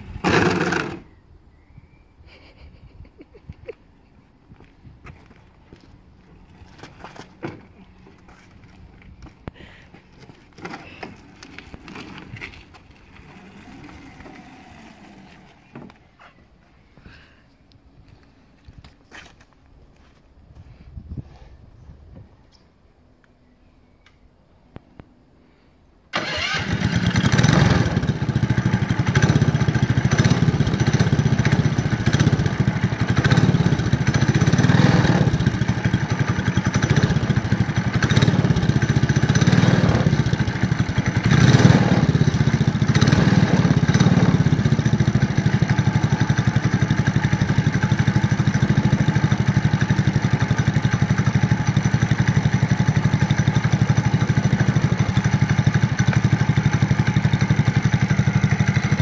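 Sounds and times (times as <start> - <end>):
go-kart engine revving and idling: 0.0 - 1.1, 10.6 - 16.0, 26.2 - 59.0.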